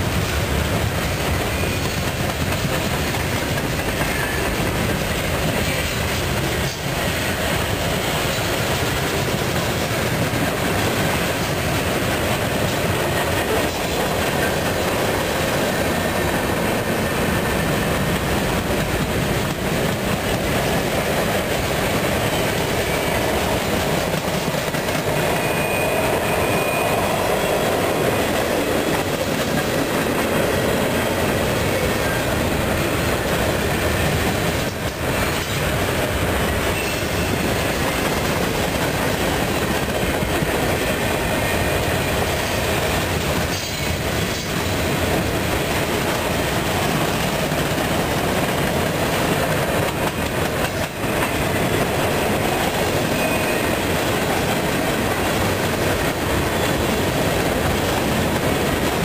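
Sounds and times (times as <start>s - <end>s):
freight train wheels clattering: 0.0s - 59.0s
high wheel squeal: 25.0s - 28.2s, 53.0s - 53.8s.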